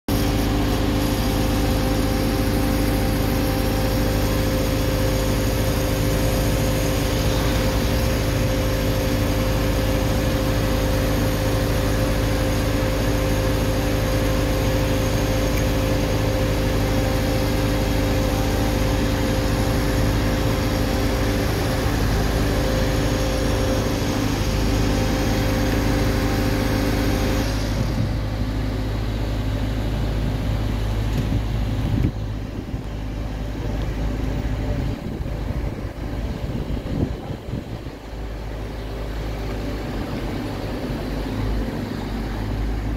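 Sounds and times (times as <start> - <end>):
hiss: 0.1 - 28.4
diesel engine idling: 0.1 - 42.9.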